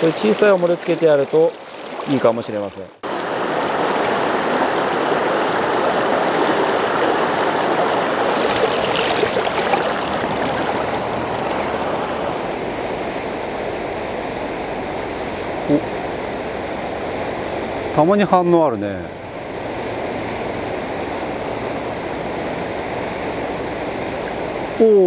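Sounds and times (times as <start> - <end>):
water splashes: 0.0 - 12.6
river rushing over rocks: 3.0 - 15.4.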